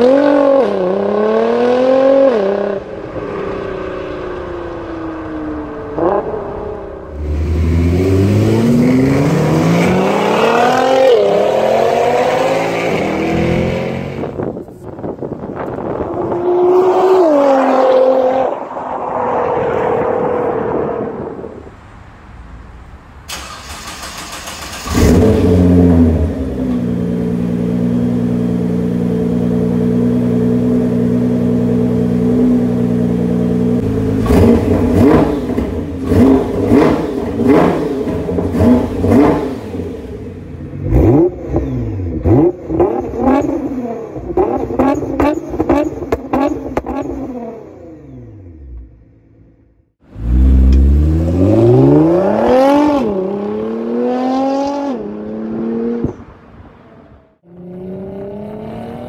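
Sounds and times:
car passing: 0:16.2 - 0:26.2
engine starter cranking: 0:23.3 - 0:25.3
engine revving blips: 0:50.1 - 0:56.2.

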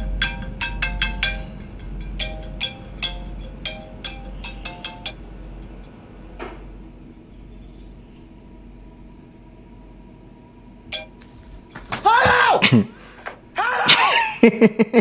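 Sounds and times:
man yelling in startled cries: 0:12.0 - 0:12.9, 0:13.6 - 0:14.2.

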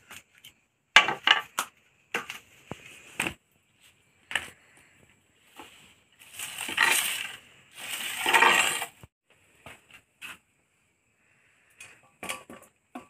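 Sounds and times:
dry leaves rustling across floor: 0:05.6 - 0:08.9.

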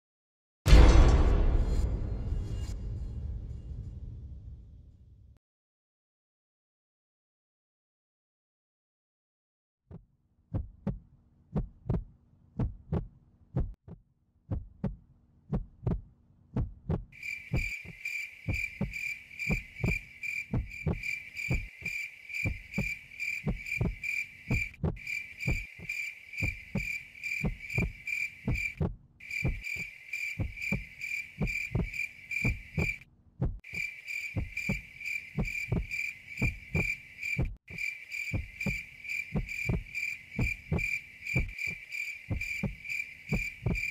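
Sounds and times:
heartbeat thumps: 0:09.9 - 0:43.9
crickets chirping: 0:17.2 - 0:33.0, 0:33.6 - 0:43.9.

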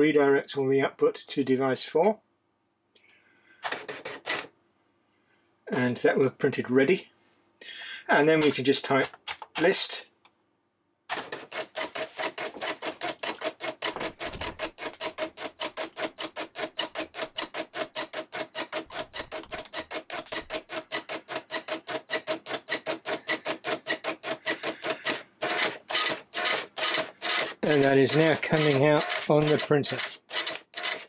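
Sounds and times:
dot-matrix printer printing: 0:03.7 - 0:04.5, 0:11.1 - 0:31.0.

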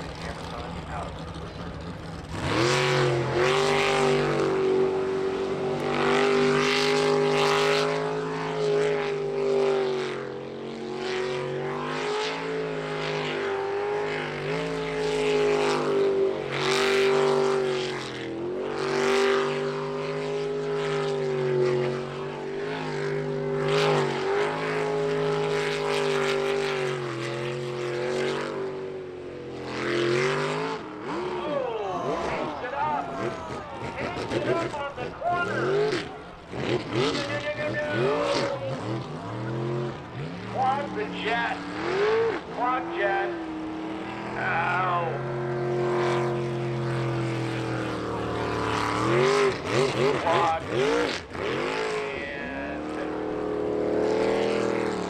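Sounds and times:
boat engine revving: 0:00.0 - 0:55.0.

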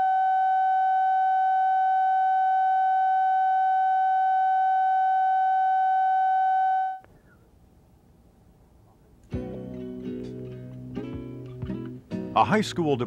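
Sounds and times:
faint tape hiss: 0:06.9 - 0:13.0.

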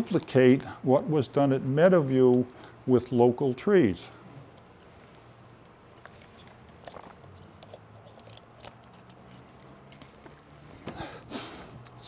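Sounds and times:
low steady hum: 0:00.0 - 0:12.0
handling noises: 0:04.5 - 0:11.9.

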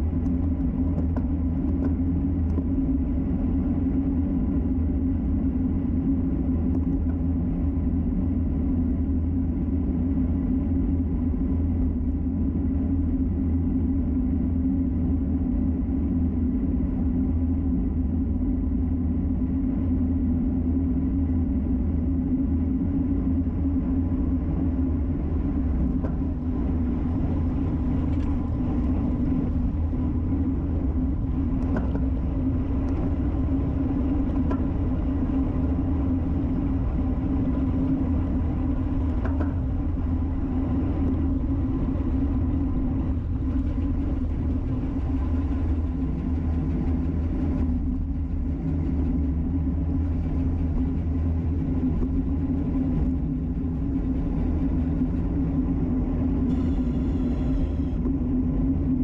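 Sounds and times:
wind rush: 0:00.0 - 0:59.0
road rumble: 0:20.4 - 0:59.0.

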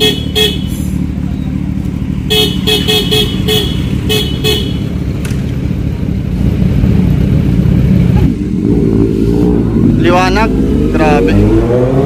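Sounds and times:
motorcycle engine idling: 0:00.0 - 0:08.6.

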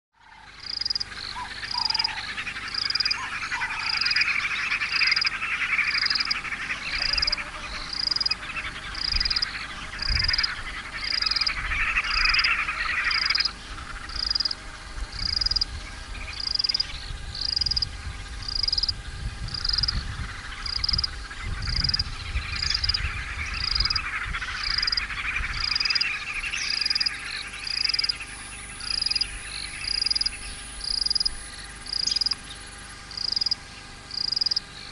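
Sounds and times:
frog chorus: 0:00.2 - 0:34.9
frog high note calls: 0:00.3 - 0:14.6.

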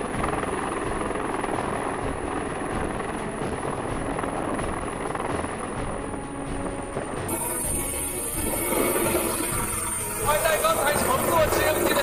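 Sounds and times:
helicopter rotor and engines: 0:00.0 - 0:12.0
high whine: 0:00.0 - 0:12.0.

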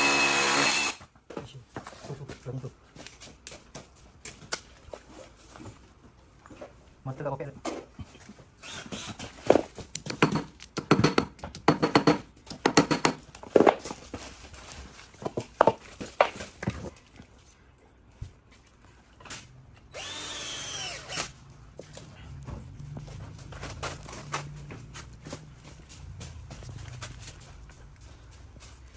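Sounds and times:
cordless drill whirring: 0:00.0 - 0:01.0, 0:08.6 - 0:09.3, 0:19.9 - 0:21.4
short bursts of tool noise: 0:00.0 - 0:01.0, 0:08.6 - 0:09.3.

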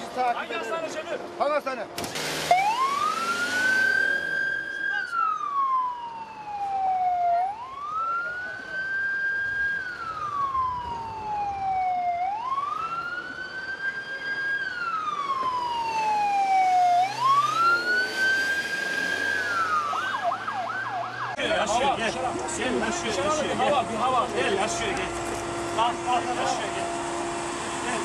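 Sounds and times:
ambulance siren wailing: 0:02.4 - 0:28.0
siren yelping: 0:02.5 - 0:21.4.

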